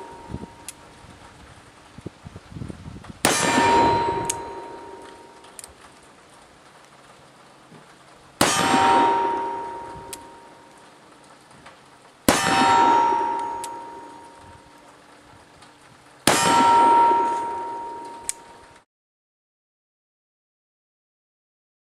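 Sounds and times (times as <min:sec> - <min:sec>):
steel target ringing: 0:00.0 - 0:00.8, 0:03.2 - 0:05.6, 0:08.4 - 0:10.9, 0:12.3 - 0:14.8, 0:16.3 - 0:18.8.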